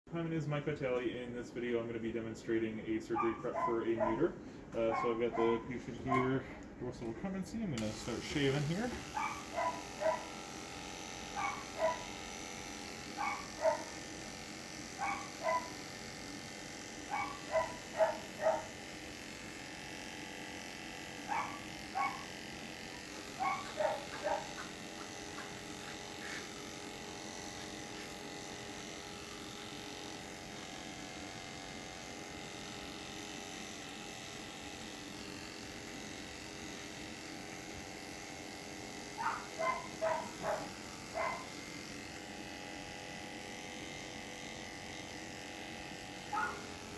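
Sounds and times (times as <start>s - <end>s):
electric clippers running: 1.8s - 6.4s, 7.6s - 46.9s
dog yipping: 3.1s - 4.3s, 4.9s - 6.4s, 9.2s - 10.3s, 11.3s - 12.1s, 13.2s - 13.9s, 15.0s - 15.8s, 17.1s - 18.8s, 21.3s - 22.4s, 23.4s - 24.8s, 39.2s - 41.6s, 46.3s - 46.7s.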